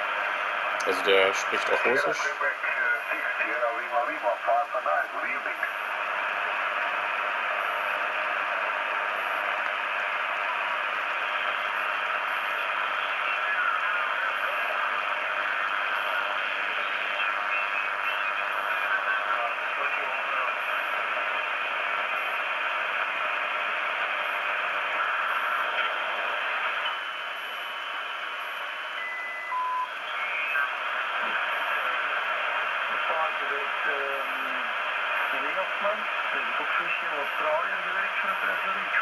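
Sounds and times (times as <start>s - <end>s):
radio hiss and static: 0.0s - 39.0s
faint garbled radio speech: 0.1s - 28.9s, 29.5s - 39.0s
radio carrier whistles: 28.5s - 31.8s.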